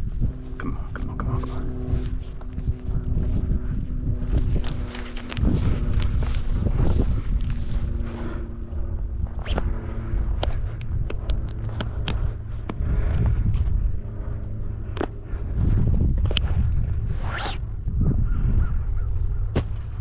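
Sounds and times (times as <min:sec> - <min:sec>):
wind rumble on microphone: 0:00.0 - 0:20.0
nylon lines rustling and scraping: 0:04.3 - 0:10.8.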